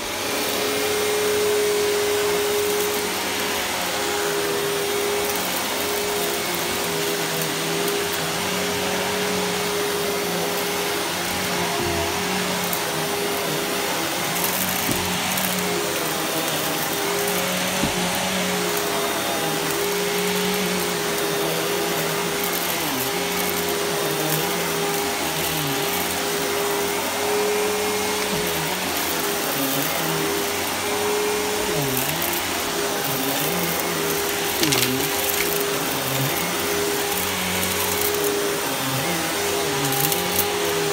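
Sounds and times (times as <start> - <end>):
vacuum cleaner running: 0.0 - 40.9.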